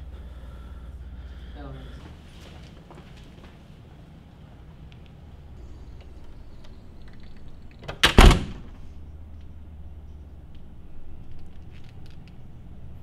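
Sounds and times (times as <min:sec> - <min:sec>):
steady low hum: 0:00.0 - 0:13.0
door banging shut: 0:07.8 - 0:08.8.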